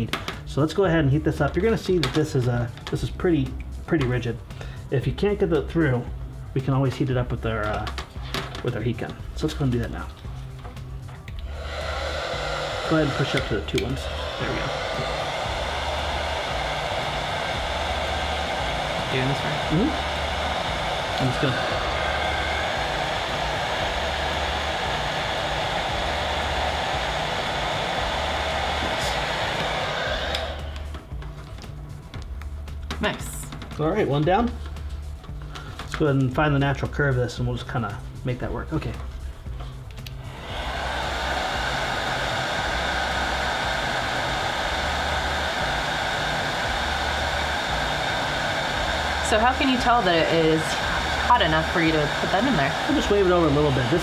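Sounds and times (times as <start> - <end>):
heat gun blowing hot air: 9.5 - 32.7, 39.5 - 54.0.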